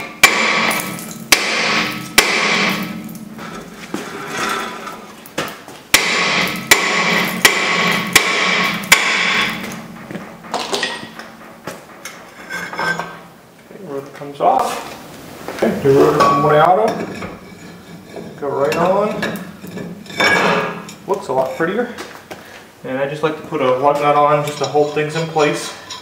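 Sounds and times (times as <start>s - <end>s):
hammer striking metal rotor: 0.0s - 5.0s, 5.9s - 13.2s
rotor ringing: 0.0s - 5.3s, 5.9s - 13.6s.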